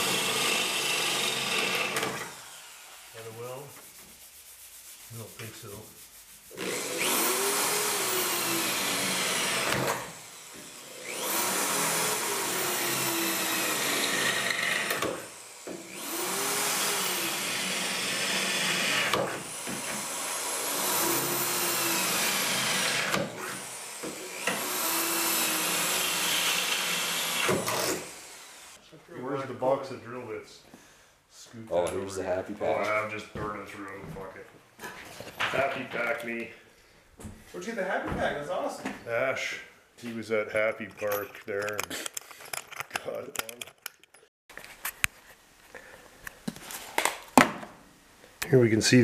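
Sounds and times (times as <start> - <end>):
electric drill boring into metal: 0.0 - 3.2, 6.6 - 28.8.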